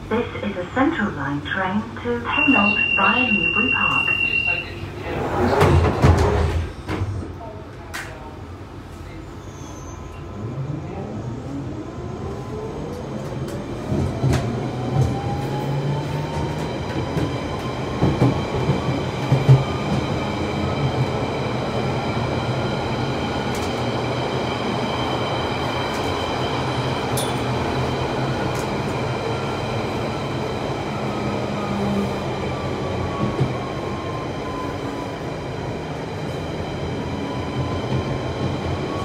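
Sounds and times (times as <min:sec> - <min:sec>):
train running noise: 0:00.0 - 0:08.1.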